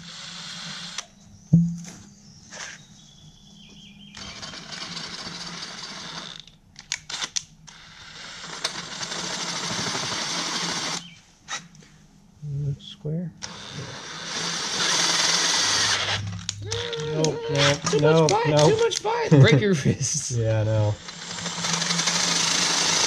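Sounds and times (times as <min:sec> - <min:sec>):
cordless drill boring: 0:00.0 - 0:01.0, 0:04.2 - 0:11.2, 0:13.4 - 0:18.9, 0:20.9 - 0:23.0
sharp knock: 0:01.5 - 0:02.0.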